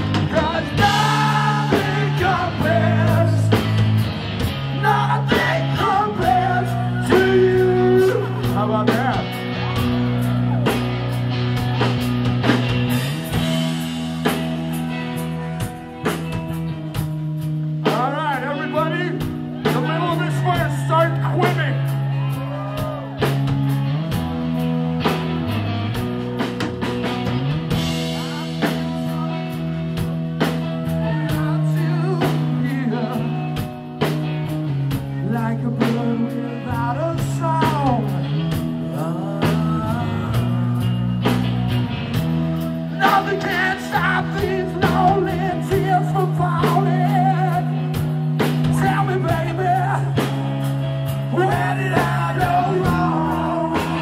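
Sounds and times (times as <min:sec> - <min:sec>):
drums with cymbal hits: 0:00.0 - 0:54.0
guitar chords: 0:00.0 - 0:54.0
person singing: 0:00.1 - 0:03.8, 0:04.8 - 0:09.9, 0:30.8 - 0:33.7, 0:35.1 - 0:41.2, 0:43.0 - 0:47.9, 0:51.3 - 0:54.0.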